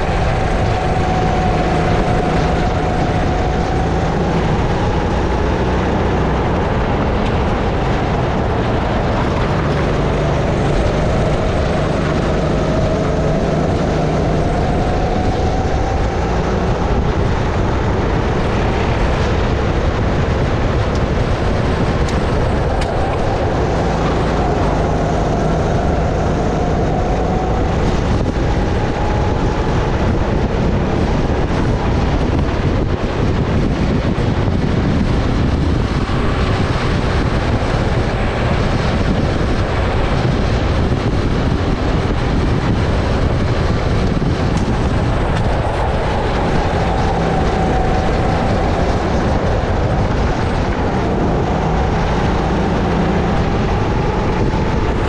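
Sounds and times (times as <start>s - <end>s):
kart engine running hard: 0.0s - 55.0s
wind rushing noise: 0.0s - 55.0s.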